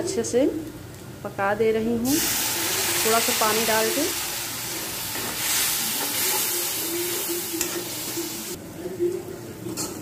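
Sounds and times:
masala sizzling in oil: 0:02.0 - 0:08.6.

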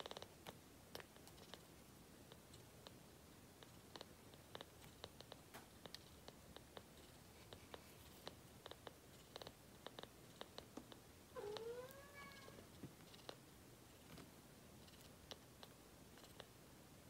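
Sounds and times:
kitten sucking wet clicks: 0:03.6 - 0:11.0
kitten mewing: 0:11.4 - 0:12.6.

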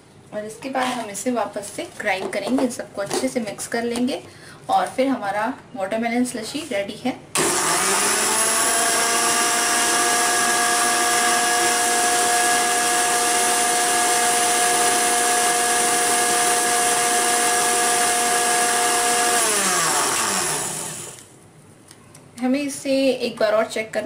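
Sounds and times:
mixer grinder motor whine: 0:07.4 - 0:21.3.

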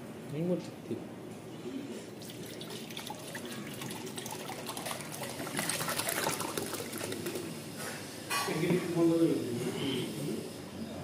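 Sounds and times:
water pouring into metal pot: 0:02.2 - 0:07.6.

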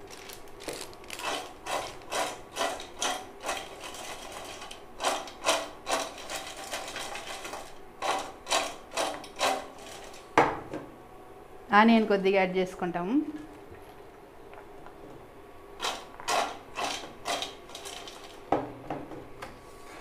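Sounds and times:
fried snacks rattling in steel bowl: 0:00.0 - 0:10.2, 0:15.8 - 0:18.5.

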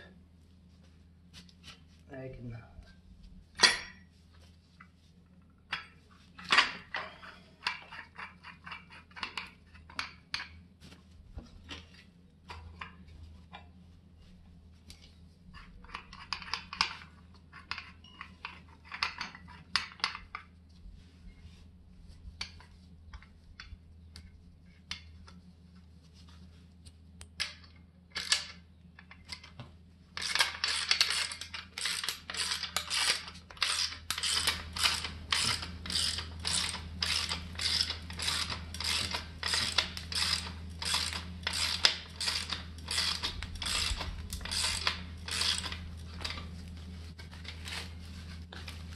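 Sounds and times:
ratchet wrench clicking: 0:30.2 - 0:45.8.

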